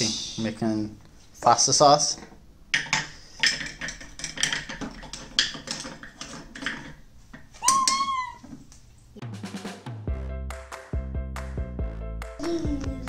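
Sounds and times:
toy cookware clattering on plastic: 2.8 - 7.0.

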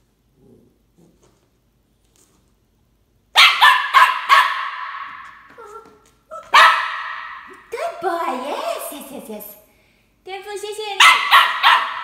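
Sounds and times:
puppy barking: 3.4 - 7.5, 11.0 - 12.0.

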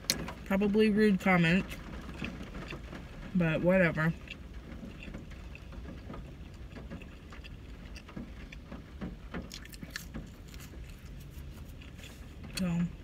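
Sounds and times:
car cabin rumble: 0.0 - 13.0
quiet chewing: 4.2 - 8.7, 9.4 - 13.0.

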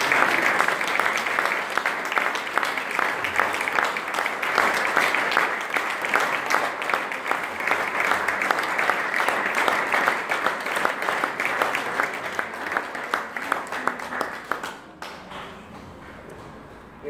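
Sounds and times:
audience applauding: 0.0 - 16.3.

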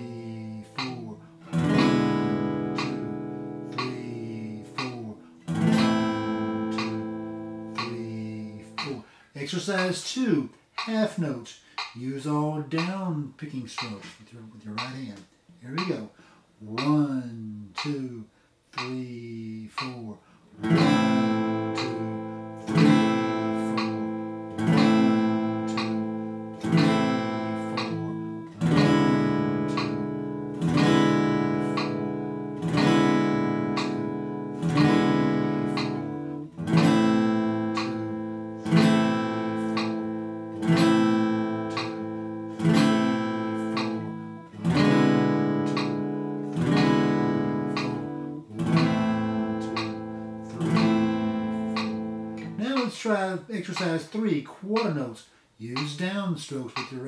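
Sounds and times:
acoustic guitar strummed chords: 0.0 - 11.4, 20.6 - 54.0.

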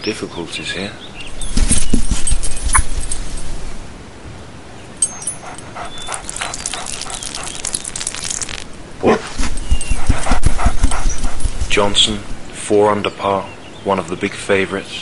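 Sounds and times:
faint crackly hiss: 1.2 - 4.0, 5.0 - 12.6
dog whining: 5.0 - 8.4, 9.4 - 11.8.

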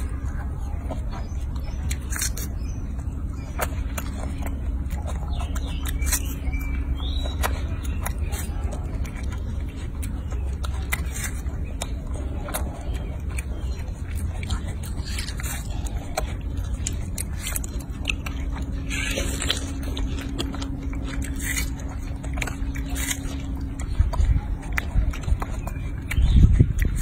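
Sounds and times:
low rumble: 0.0 - 27.0
monkey chewing watermelon: 0.0 - 27.0.

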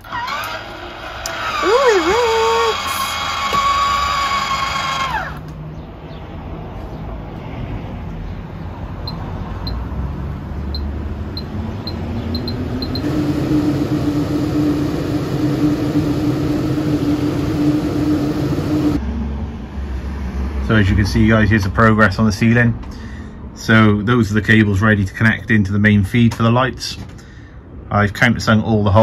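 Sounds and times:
fan motor hum: 0.0 - 5.6, 9.0 - 19.0.

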